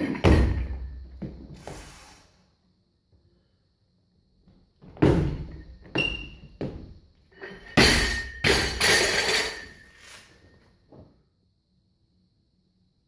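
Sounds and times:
barbell crashing on floor: 0:00.0 - 0:01.1, 0:07.5 - 0:09.9
metallic ringing and rattling: 0:07.3 - 0:10.0.

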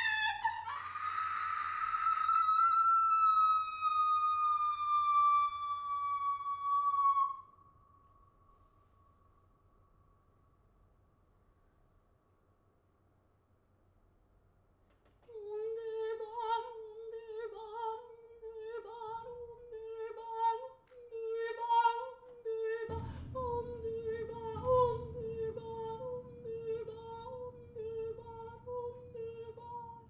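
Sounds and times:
low rumbling resonance: 0:21.1 - 0:30.0.

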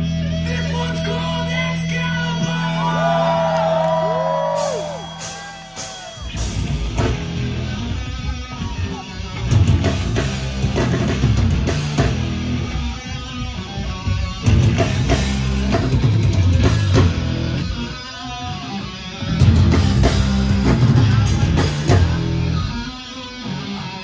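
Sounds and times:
live hardcore band: 0:00.0 - 0:24.0
bending guitar notes: 0:03.2 - 0:24.0
drums crashing: 0:04.0 - 0:17.8, 0:19.4 - 0:22.6.

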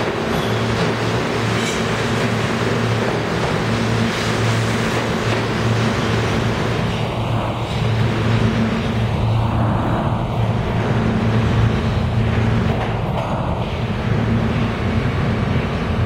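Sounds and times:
subway train rumbling on rails: 0:00.0 - 0:16.0
steady low hum: 0:03.7 - 0:16.0.

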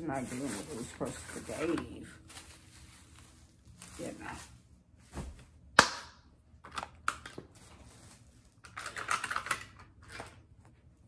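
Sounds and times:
ribbon and tinsel rustling: 0:00.0 - 0:05.4.

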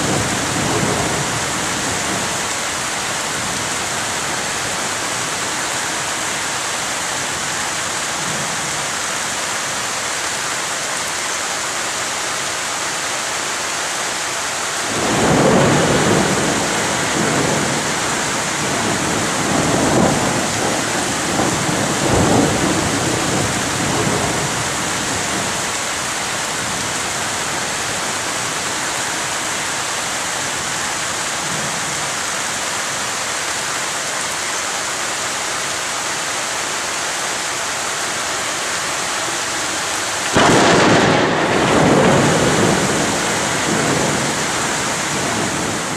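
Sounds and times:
thunder rumbling: 0:00.0 - 0:05.4, 0:14.9 - 0:28.7, 0:40.2 - 0:45.9
heavy rain pouring: 0:00.0 - 0:45.9.

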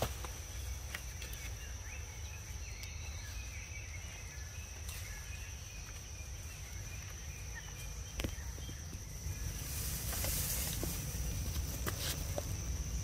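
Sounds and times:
faint bird chirps: 0:00.4 - 0:10.1.

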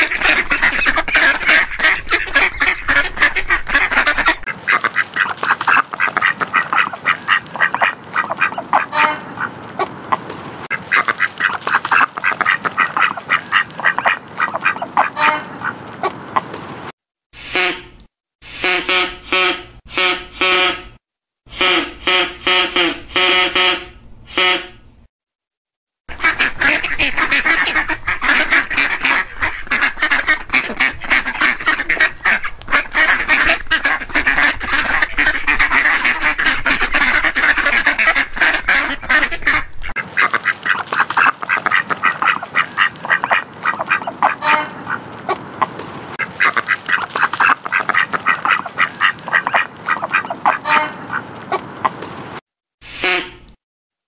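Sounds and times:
ducks quacking: 0:00.0 - 0:16.6, 0:26.1 - 0:52.2.

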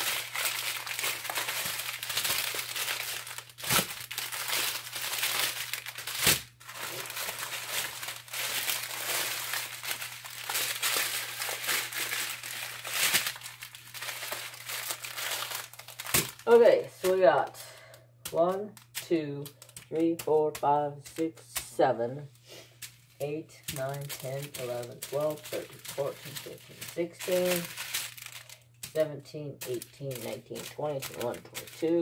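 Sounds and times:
bags tapping on plastic: 0:00.0 - 0:16.5, 0:23.7 - 0:29.0
plastic bags crinkling: 0:00.0 - 0:17.6, 0:22.8 - 0:32.0.

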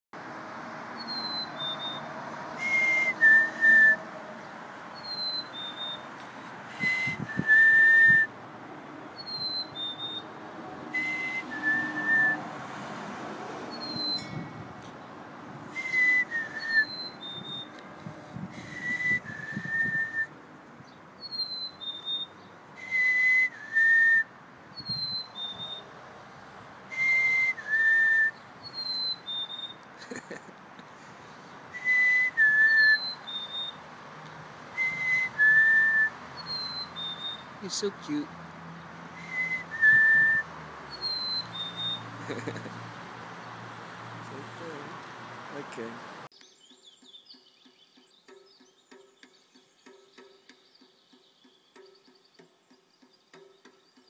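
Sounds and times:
chickadee singing: 0:01.0 - 0:03.7, 0:05.0 - 0:06.2, 0:09.2 - 0:10.3, 0:13.7 - 0:14.4, 0:15.8 - 0:17.8, 0:20.9 - 0:22.5, 0:24.7 - 0:25.9, 0:28.3 - 0:30.3, 0:32.6 - 0:33.8, 0:36.3 - 0:38.3, 0:40.9 - 0:42.6, 0:46.3 - 0:54.0
person whistling two notes: 0:06.8 - 0:08.3, 0:11.0 - 0:12.4, 0:15.8 - 0:17.6, 0:18.6 - 0:20.3, 0:22.8 - 0:24.3, 0:27.0 - 0:28.4, 0:31.8 - 0:33.2, 0:34.8 - 0:36.1, 0:39.2 - 0:40.5.

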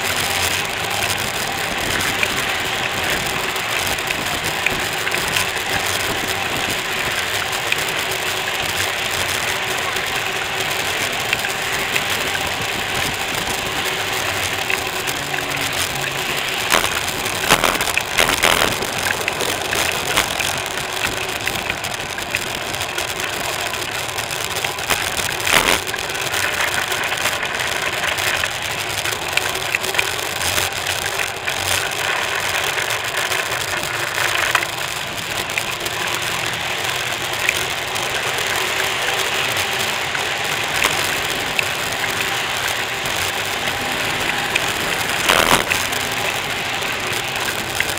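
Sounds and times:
bicycle rolling over pavement: 0:00.0 - 0:47.9.

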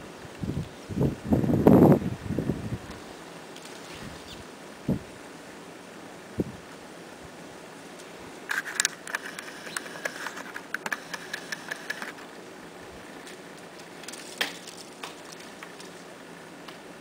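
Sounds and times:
woodpecker pecking: 0:08.5 - 0:12.4.

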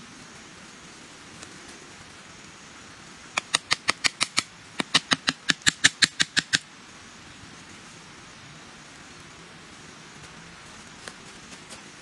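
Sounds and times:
rapid sharp clicking: 0:03.4 - 0:06.6.

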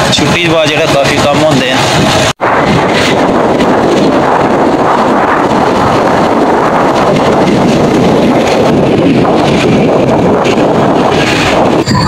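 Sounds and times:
motorcycle ride noise: 0:00.0 - 0:12.0
wind rush on microphone: 0:00.0 - 0:12.0.

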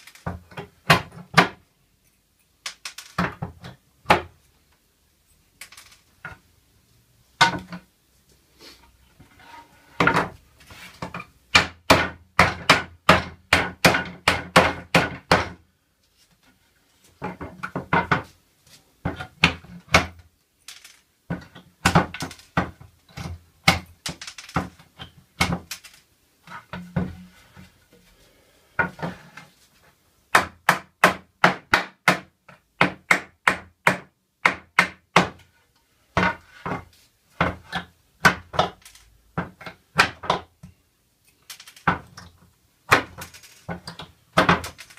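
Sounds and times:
hammer striking wooden boards: 0:11.5 - 0:15.6, 0:19.1 - 0:20.2, 0:30.3 - 0:35.4, 0:37.4 - 0:38.8, 0:42.9 - 0:44.8.

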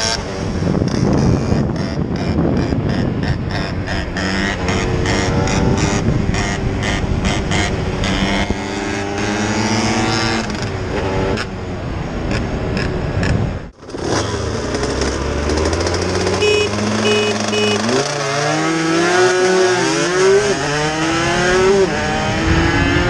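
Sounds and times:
wind rush on microphone: 0:00.0 - 0:13.8, 0:20.5 - 0:23.0
motorcycle engines revving: 0:00.0 - 0:23.0.

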